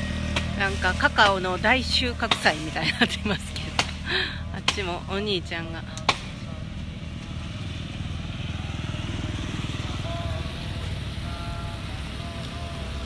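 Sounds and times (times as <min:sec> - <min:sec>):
small motorcycle passing by: 0:00.0 - 0:01.6, 0:07.0 - 0:13.0.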